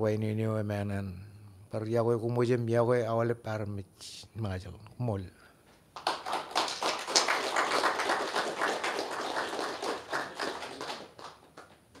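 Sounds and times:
group applauding: 0:06.0 - 0:12.0.

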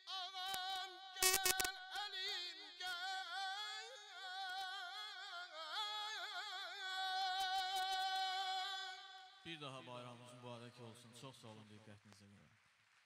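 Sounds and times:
man singing a hymn: 0:00.0 - 0:10.2.

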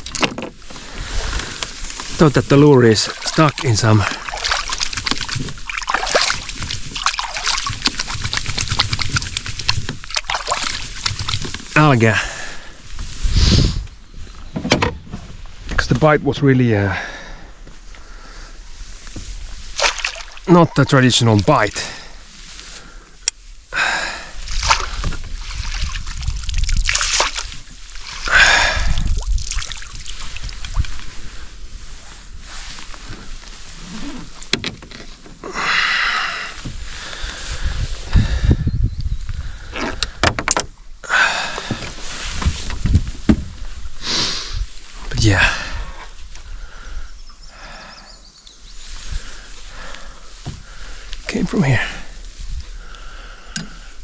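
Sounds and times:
hands sloshing in water: 0:02.9 - 0:11.5, 0:19.7 - 0:21.0, 0:24.5 - 0:31.1
fish thrashing in net: 0:03.0 - 0:11.7, 0:19.7 - 0:20.4, 0:24.5 - 0:30.9.

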